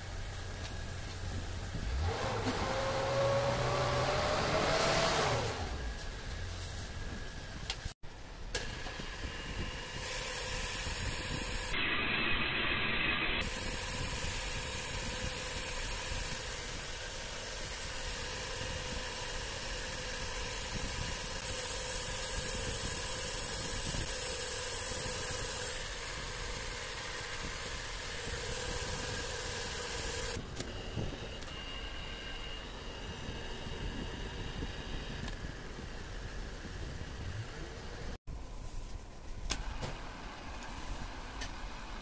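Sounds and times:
boring machine humming and cutting: 0:13.4 - 0:36.5.

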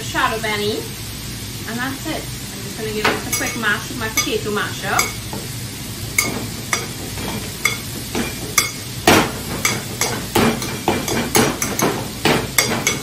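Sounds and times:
onions and peppers sizzling in pan: 0:00.0 - 0:13.0
potato masher knocking in glass bowl: 0:07.6 - 0:13.0.

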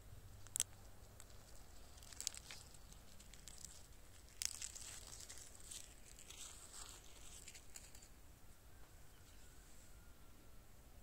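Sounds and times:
rustling: 0:00.2 - 0:08.2
plastic tape crinkling and peeling: 0:00.4 - 0:08.1.

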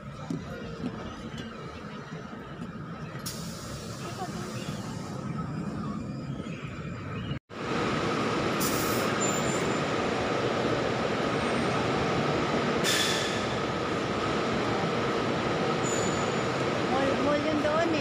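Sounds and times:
buses running in a terminal: 0:00.0 - 0:18.0
air hissing: 0:12.8 - 0:13.6.

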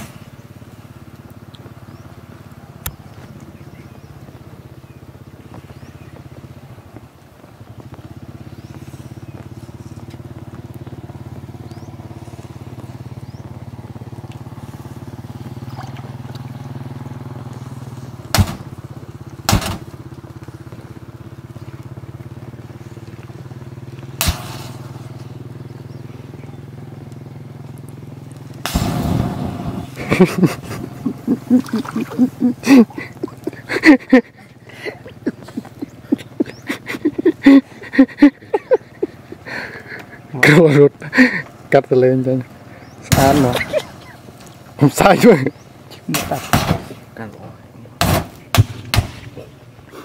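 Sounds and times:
fire crackling and popping: 0:00.0 - 0:31.6, 0:42.5 - 0:47.1, 0:48.0 - 0:49.9
steady low hum: 0:00.0 - 0:50.0
lighters bursting with sharp cracks: 0:18.3 - 0:18.8, 0:19.5 - 0:20.0, 0:24.2 - 0:25.2, 0:28.3 - 0:31.0.

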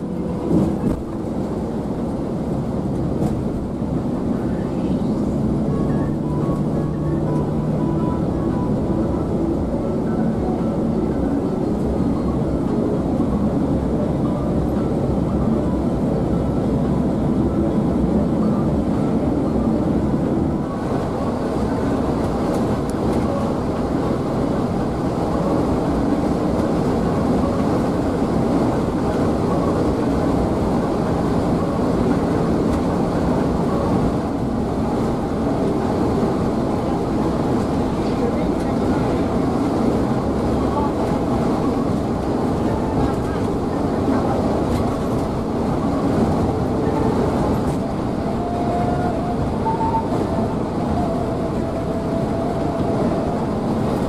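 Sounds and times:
coach engine and tyre noise: 0:00.0 - 0:54.0.

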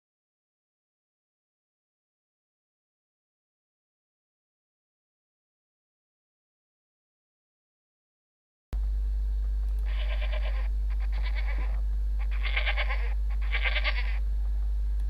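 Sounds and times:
steady low hum: 0:08.8 - 0:15.0
animal bleating: 0:09.8 - 0:14.2.

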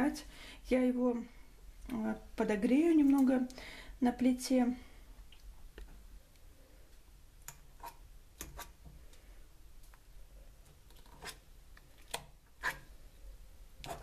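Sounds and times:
fork scraping enamel bowl: 0:07.8 - 0:08.8, 0:11.0 - 0:11.5, 0:12.6 - 0:12.9.

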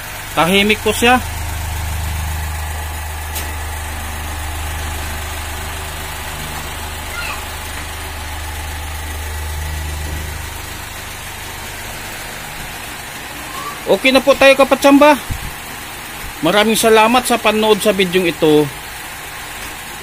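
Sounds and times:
fan motor humming: 0:00.0 - 0:20.0.

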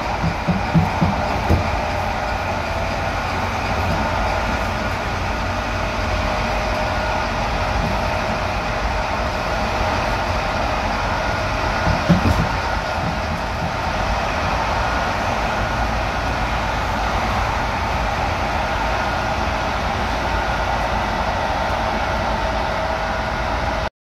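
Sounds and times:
electric locomotive rumbling: 0:00.0 - 0:23.9
knocks: 0:00.1 - 0:01.9, 0:11.8 - 0:13.9.

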